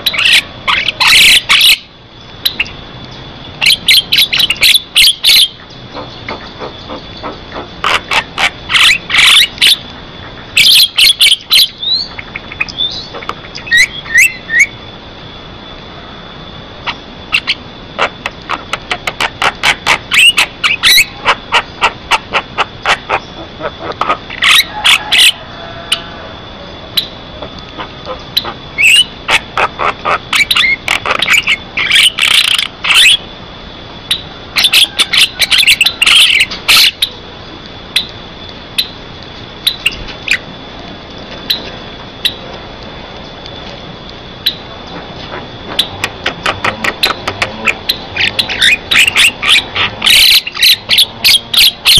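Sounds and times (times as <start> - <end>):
bird singing sharp clicks: 2.2 - 3.2.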